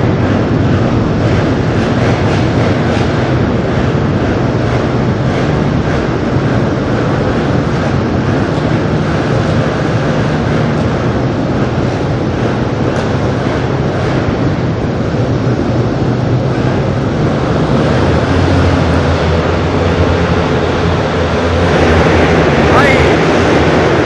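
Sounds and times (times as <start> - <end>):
many motorbike engines droning: 0.0 - 24.0.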